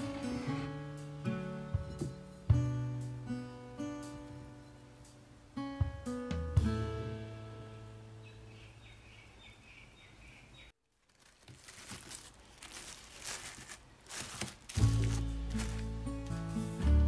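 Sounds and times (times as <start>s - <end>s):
background music: 0.0s - 8.4s, 14.7s - 17.0s
plastic cling wrap crinkling: 10.8s - 16.8s.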